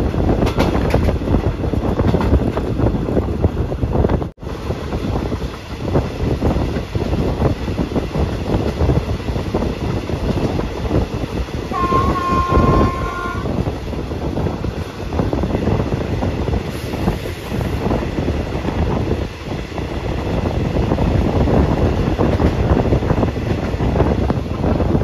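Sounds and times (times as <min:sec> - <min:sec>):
train rumbling on rails: 0:00.0 - 0:25.0
train horn: 0:11.7 - 0:13.6.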